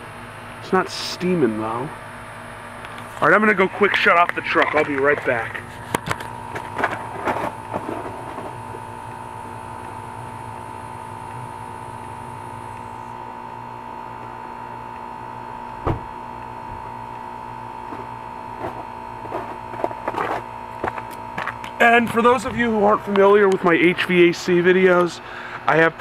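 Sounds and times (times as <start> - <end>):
heat pump compressor humming: 0.0 - 26.0
thump: 15.8 - 16.1.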